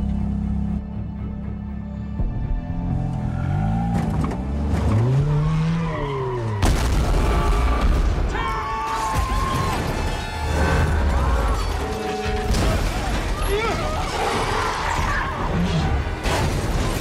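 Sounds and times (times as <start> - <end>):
film score music: 0.0 - 17.0
loud car crash: 6.5 - 8.3, 8.9 - 17.0
crunching debris: 6.6 - 17.0.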